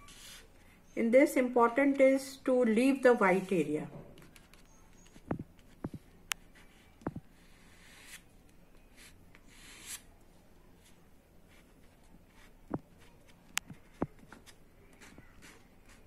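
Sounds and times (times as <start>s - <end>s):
plastic card scraping paper: 9.0s - 10.1s, 13.2s - 16.0s.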